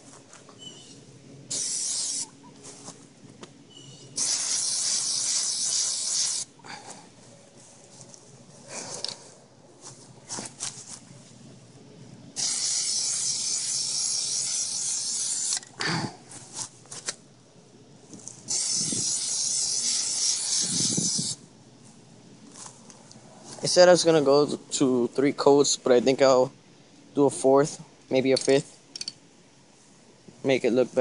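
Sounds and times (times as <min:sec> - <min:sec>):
aerosol can spraying: 0:01.5 - 0:02.3, 0:04.2 - 0:06.6, 0:12.4 - 0:15.6, 0:18.4 - 0:21.4.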